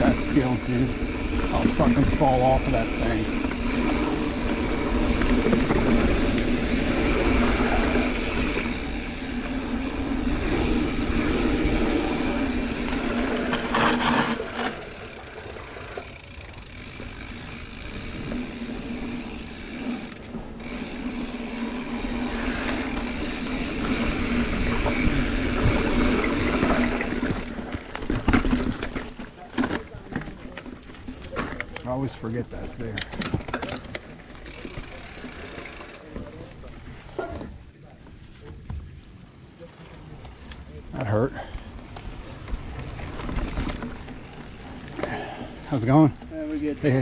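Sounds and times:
bike rolling rumble and rattle: 0.0s - 47.0s.

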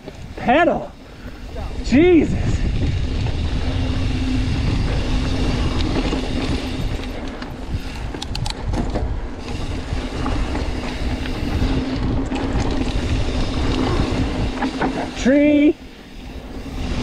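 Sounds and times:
bike tyre and frame rattle: 0.0s - 17.0s
wind buffeting microphone: 0.0s - 17.0s
sharp clicks: 7.0s - 8.8s.

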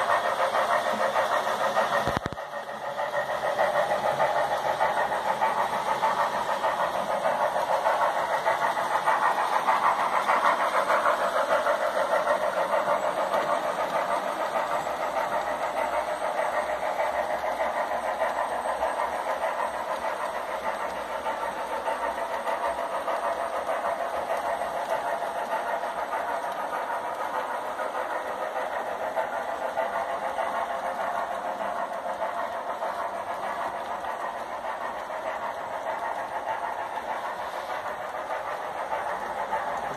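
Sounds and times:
model train running on track: 0.0s - 39.9s.

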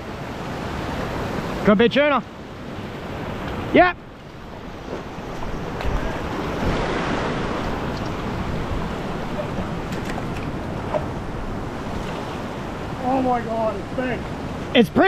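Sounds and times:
ocean surf washing on rocks: 0.0s - 15.0s
wind on microphone: 2.6s - 14.8s.

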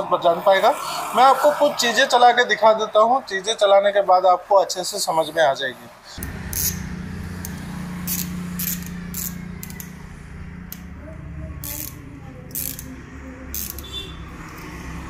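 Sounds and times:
low hum: 6.2s - 13.4s.

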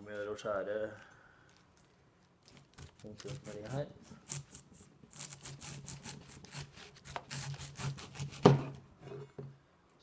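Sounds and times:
serrated knife sawing pineapple: 3.0s - 8.5s.

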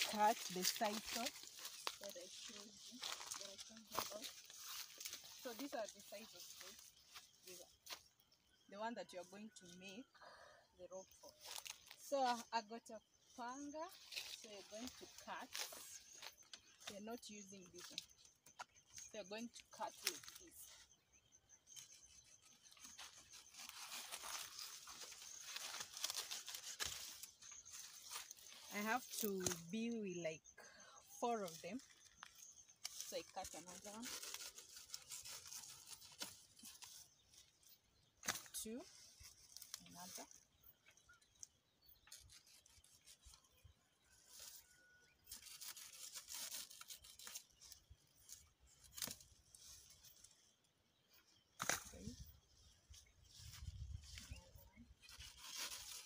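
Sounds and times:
stiff leaves rustling and crackling: 0.0s - 8.0s, 11.1s - 12.4s, 13.4s - 20.8s, 21.7s - 30.2s, 31.2s - 43.5s, 44.1s - 50.5s, 51.5s - 56.0s
machete cutting leaves: 22.9s - 29.7s, 38.2s - 38.6s, 45.2s - 49.4s, 51.5s - 52.0s
machete chopping plant leaves: 51.6s - 52.0s.

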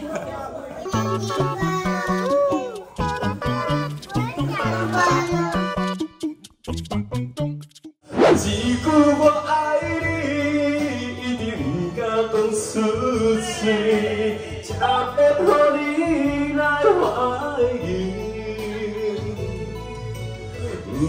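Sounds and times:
karaoke backing track: 0.8s - 7.0s, 7.8s - 21.0s
man singing into microphone: 8.4s - 19.8s, 20.6s - 21.0s.

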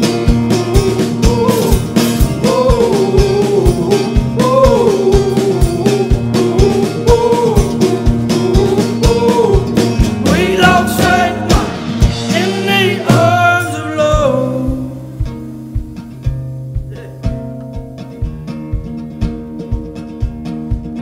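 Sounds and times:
wordless sung vocals: 0.0s - 15.6s
acoustic guitar: 0.0s - 21.0s
drum kit beat: 0.0s - 21.0s.

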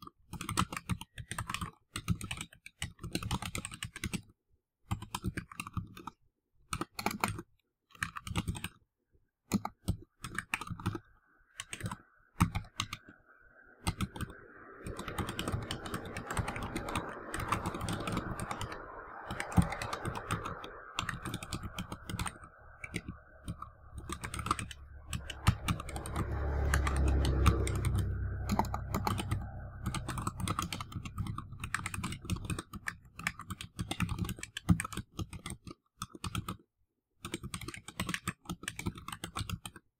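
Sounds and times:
keyboard typing clicks: 0.0s - 8.8s, 9.5s - 36.6s, 37.2s - 39.8s
low background rumble: 13.8s - 33.2s.

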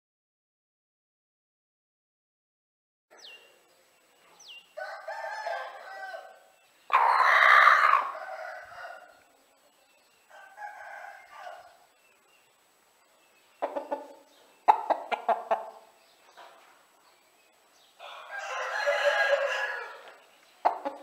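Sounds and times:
rooster crowing: 4.8s - 9.2s, 10.3s - 11.8s, 18.0s - 20.2s.

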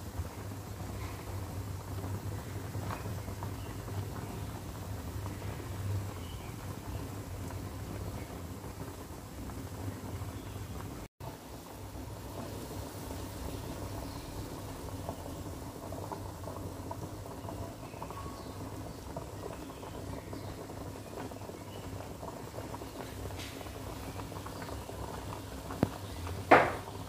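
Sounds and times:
pot boiling hard: 0.0s - 27.0s
sharp knocks: 26.5s - 26.8s.

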